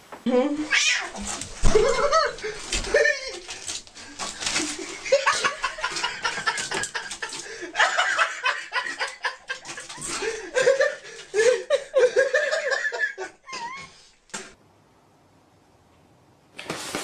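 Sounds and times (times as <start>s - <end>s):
rustling: 0.0s - 11.8s
person giggling: 1.6s - 3.7s, 4.6s - 14.0s.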